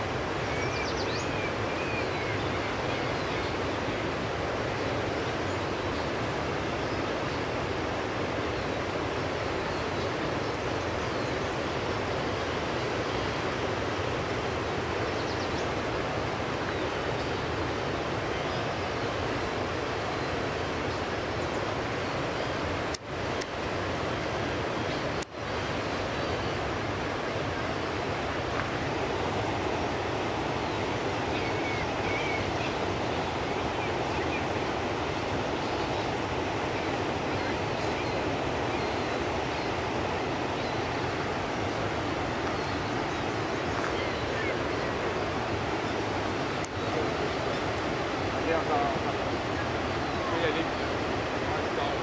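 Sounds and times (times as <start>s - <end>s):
river rushing over rapids: 0.0s - 52.0s
faint high bird calls: 0.4s - 4.2s, 28.7s - 52.0s.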